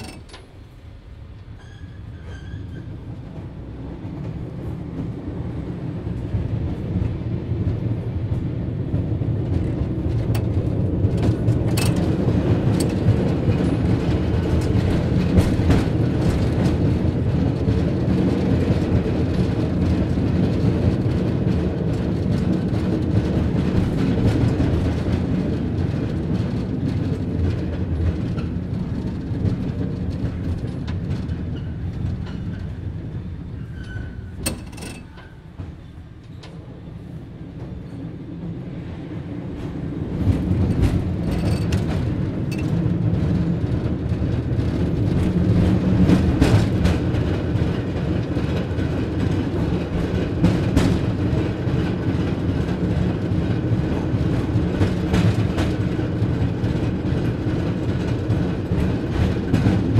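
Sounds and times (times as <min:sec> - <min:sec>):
clicks and rattles: 0:00.0 - 0:00.6, 0:11.2 - 0:13.1, 0:34.4 - 0:35.3, 0:41.2 - 0:42.8
cable car rumbling: 0:00.0 - 0:59.9.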